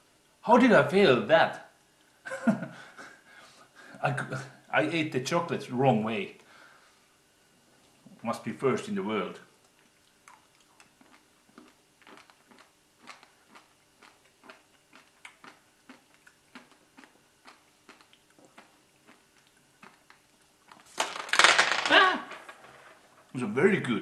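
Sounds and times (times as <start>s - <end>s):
chewing and crunching candy: 9.5s - 21.0s
candies rattling onto table: 20.8s - 23.1s.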